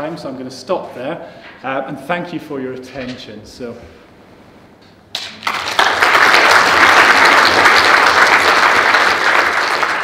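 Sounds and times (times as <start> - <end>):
audience applauding: 5.1 - 10.0.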